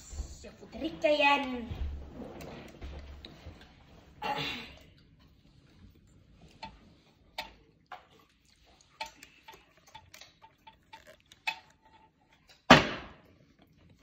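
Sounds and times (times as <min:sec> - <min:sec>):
bottle landing thud: 0:12.7 - 0:13.2.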